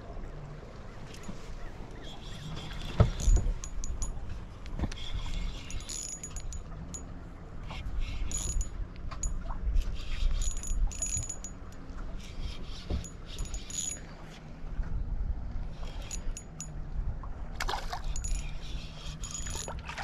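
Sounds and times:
low uneven rumble: 0:00.0 - 0:20.0
metallic clicks and jingles: 0:01.1 - 0:01.6, 0:03.0 - 0:04.5, 0:05.2 - 0:07.2, 0:08.0 - 0:14.4, 0:15.8 - 0:16.8, 0:18.0 - 0:19.9.

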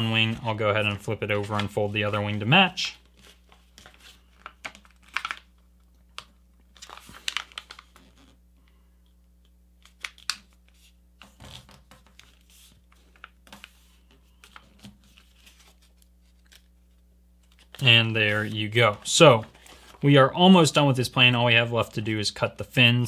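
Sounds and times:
paper rustling and crinkling: 0:03.0 - 0:05.5, 0:06.2 - 0:08.4, 0:09.8 - 0:20.1.

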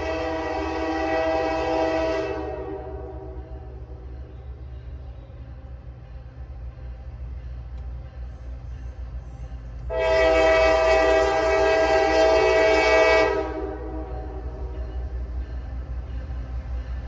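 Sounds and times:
locomotive horn blast: 0:00.0 - 0:04.0, 0:09.9 - 0:15.0
low train rumble: 0:00.0 - 0:17.0.

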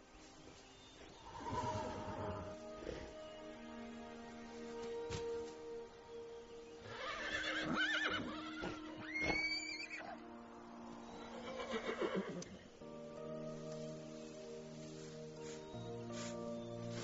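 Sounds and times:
soft background music: 0:00.0 - 0:17.0
horse whinnying: 0:06.9 - 0:10.2, 0:11.2 - 0:12.6.

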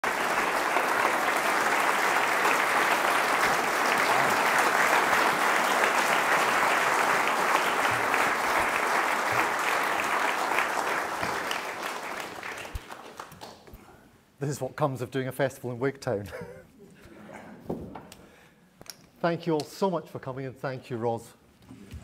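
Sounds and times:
audience applauding: 0:00.0 - 0:13.7.

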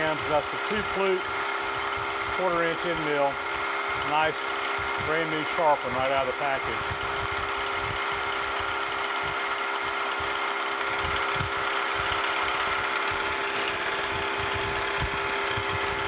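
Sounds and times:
milling machine motor hum: 0:00.0 - 0:16.0
end mill cutting hiss: 0:04.0 - 0:06.9.

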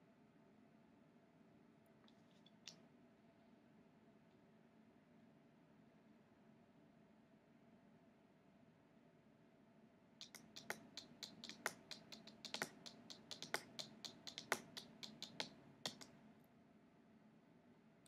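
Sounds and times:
cards clicking and tapping: 0:10.2 - 0:16.1.

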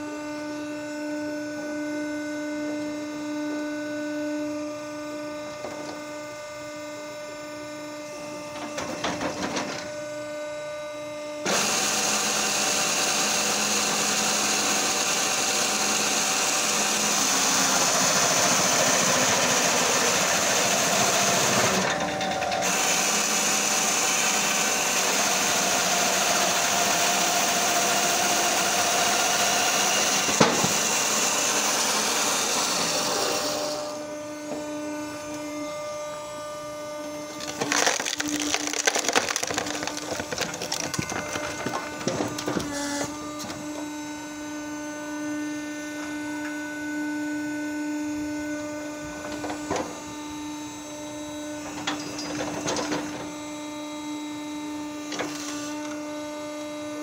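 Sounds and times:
motor and hydraulics humming: 0:00.0 - 0:57.0
chainsaw cutting through log: 0:11.4 - 0:35.9, 0:37.0 - 0:44.7.

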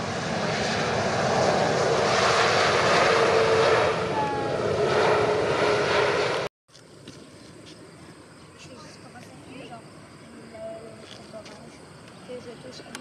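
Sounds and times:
jet engines rushing: 0:00.0 - 0:08.3.

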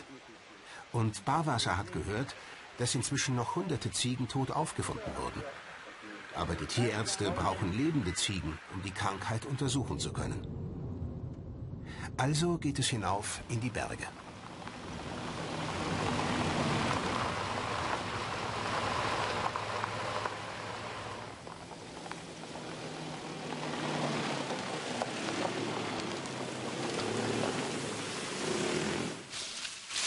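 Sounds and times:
tyres rolling over stones: 0:13.0 - 0:30.0
vehicle engine running: 0:14.2 - 0:29.3.

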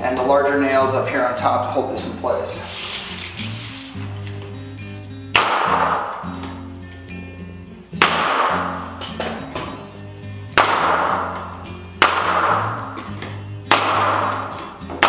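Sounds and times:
background music with bass line: 0:00.0 - 0:15.0
nail gun firing: 0:05.3 - 0:06.3, 0:08.0 - 0:08.8, 0:10.6 - 0:15.0.

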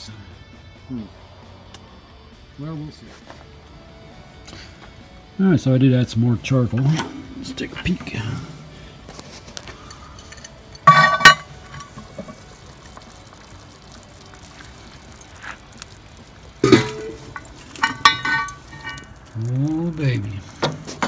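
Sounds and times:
metal lid clanking: 0:06.6 - 0:12.4, 0:16.6 - 0:19.1
metal clinks: 0:09.8 - 0:12.4, 0:16.6 - 0:19.2.

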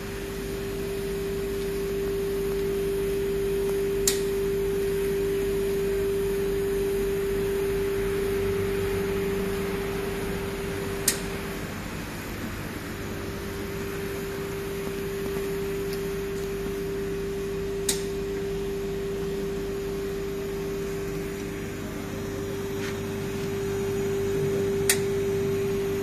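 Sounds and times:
machine humming: 0:00.0 - 0:26.0
sharp clicks: 0:17.9 - 0:18.1.

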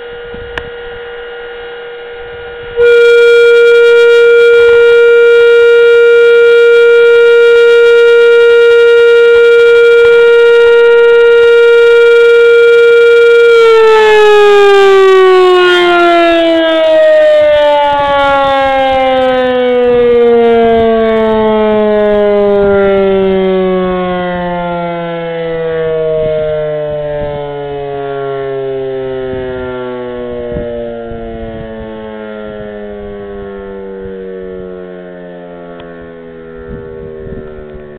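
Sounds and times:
siren tone falling in pitch: 0:00.0 - 0:37.9.

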